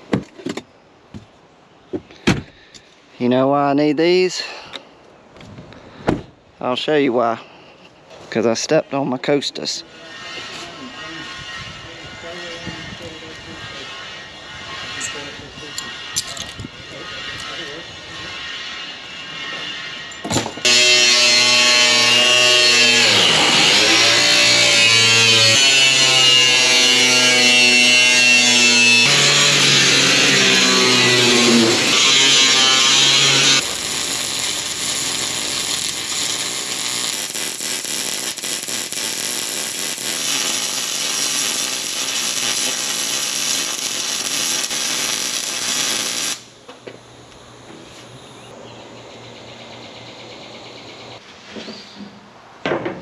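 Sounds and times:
arc welder crackling: 0:20.6 - 0:48.4.

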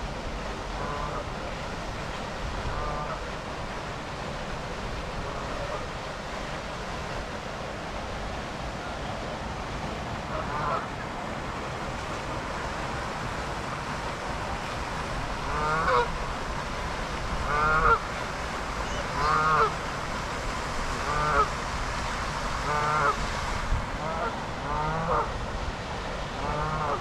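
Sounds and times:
steady rushing noise: 0:00.0 - 0:27.0
geese honking: 0:10.3 - 0:10.8, 0:15.5 - 0:16.1, 0:17.5 - 0:18.0, 0:18.9 - 0:19.7, 0:24.0 - 0:25.3, 0:26.4 - 0:27.0.

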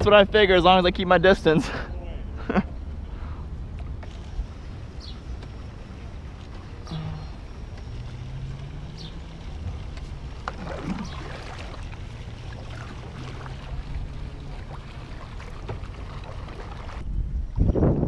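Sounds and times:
paddle splashing in water: 0:05.4 - 0:17.0.

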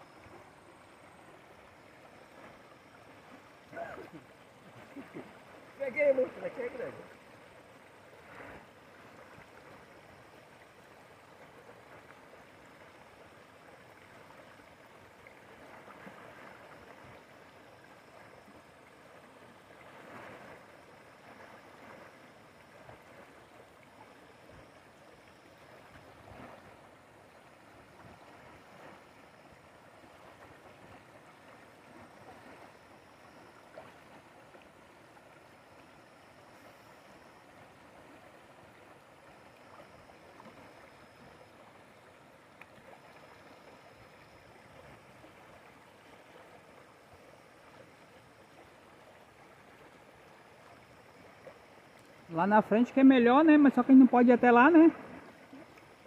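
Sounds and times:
river rushing over rocks: 0:05.4 - 0:07.2.

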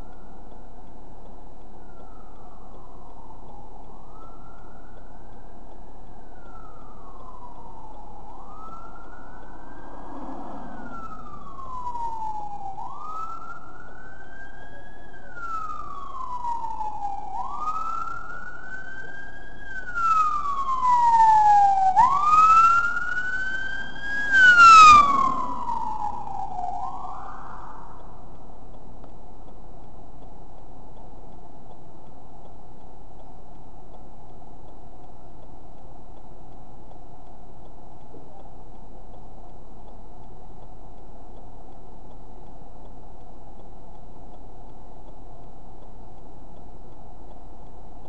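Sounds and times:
emergency vehicle siren wailing: 0:00.0 - 0:28.4.

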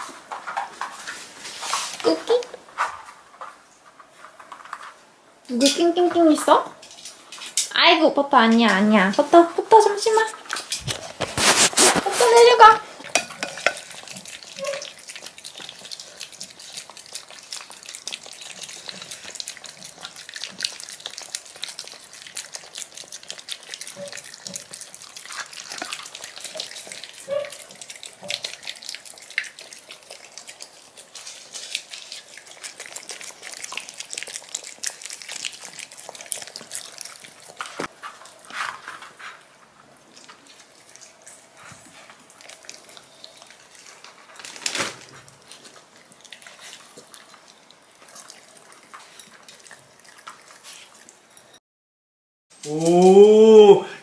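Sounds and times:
puppies eating wet food: 0:00.0 - 0:51.6
puppy squeaks: 0:14.6 - 0:14.9, 0:27.2 - 0:27.6.

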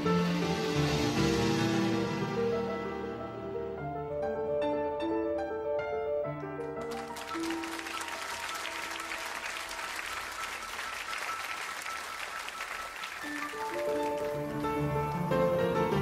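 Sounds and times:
quiet piano-like music: 0:00.0 - 0:16.0
audience applauding: 0:06.8 - 0:16.0.

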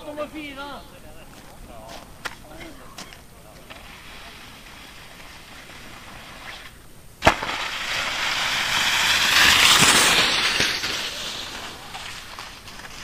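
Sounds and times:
skis hissing over snow: 0:02.5 - 0:13.0
skis slapping down on snow: 0:03.6 - 0:13.0.

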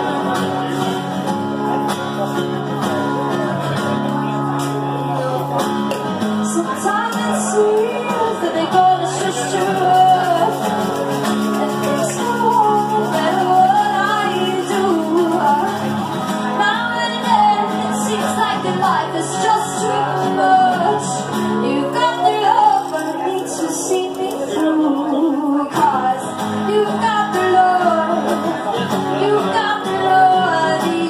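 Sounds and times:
acoustic guitar: 0:00.0 - 0:31.0
woman singing into microphone: 0:06.4 - 0:31.0.

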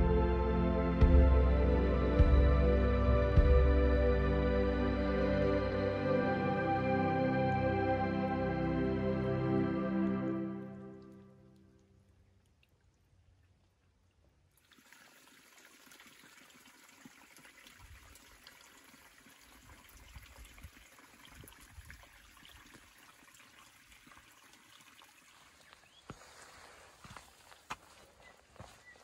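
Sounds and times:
water trickling and dripping: 0:10.6 - 0:26.5
footsteps on wet ground: 0:25.3 - 0:29.0.

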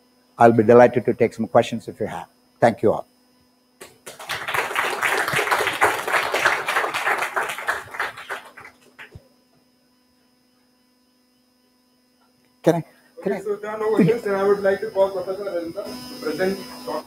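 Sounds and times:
steady electrical hum: 0:00.0 - 0:17.0
audience applauding: 0:03.8 - 0:09.2.

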